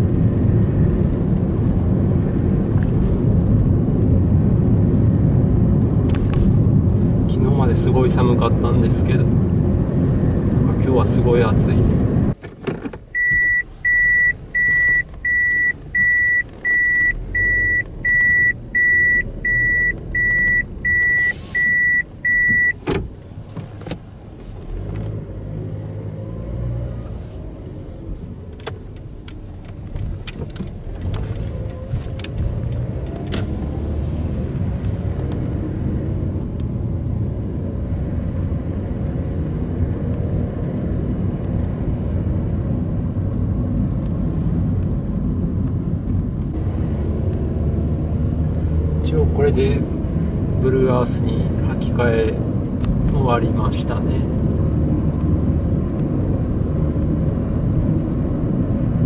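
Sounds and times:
road and tyre rumble in car cabin: 0.0 - 59.0
car electronic warning beep: 13.1 - 22.8.

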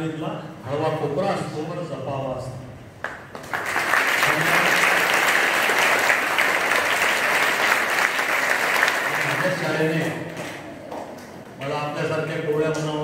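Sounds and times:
audience clapping: 3.0 - 11.8.

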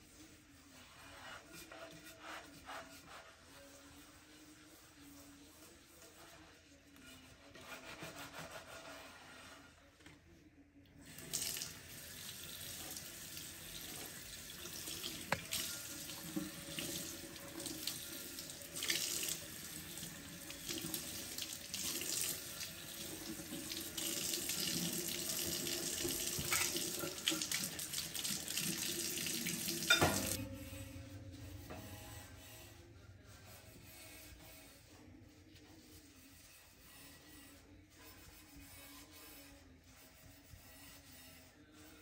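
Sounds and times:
tap water running into a sink: 11.1 - 30.4.

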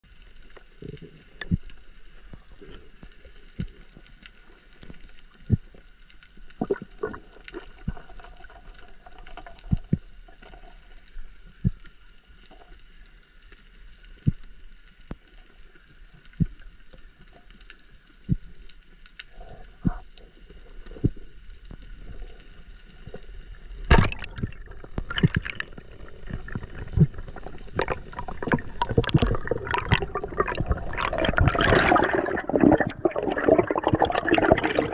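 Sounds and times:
rushing water: 23.5 - 34.9
underwater clicks and knocks: 23.9 - 34.8.

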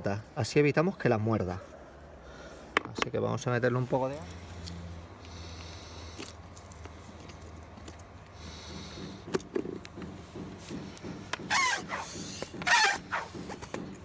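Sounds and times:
hand air pump strokes: 4.1 - 14.0
tyre rubber squeaks: 11.4 - 14.0.

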